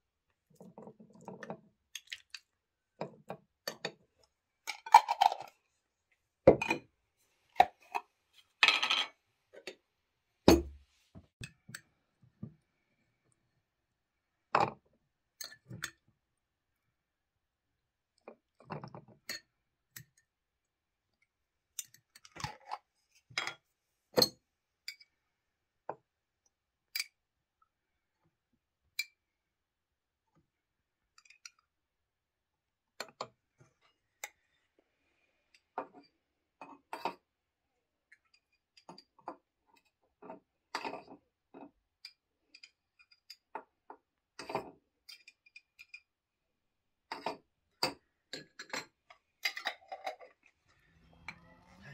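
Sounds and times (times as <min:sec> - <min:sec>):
cutlery clinking on jars and bowls: 0:44.4 - 0:46.1, 0:47.1 - 0:50.4.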